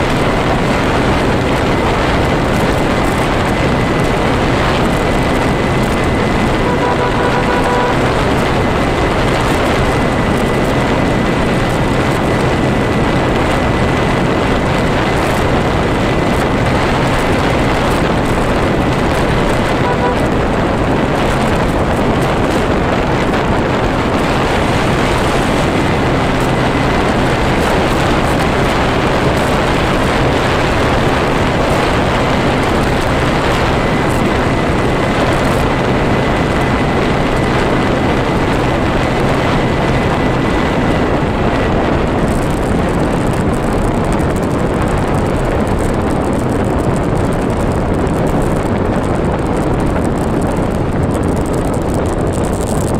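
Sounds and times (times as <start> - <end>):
low engine hum: 0.0 - 52.9
road noise on asphalt: 0.0 - 52.9
wind rush on microphone: 0.0 - 52.9.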